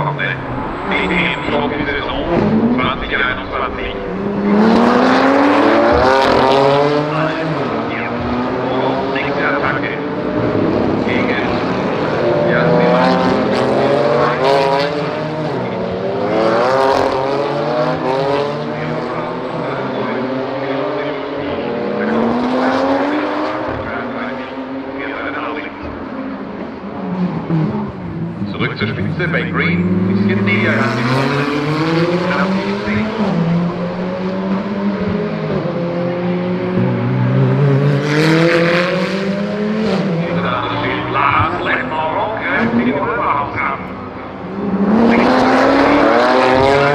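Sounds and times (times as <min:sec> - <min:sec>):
race car engines: 0:00.0 - 0:46.9.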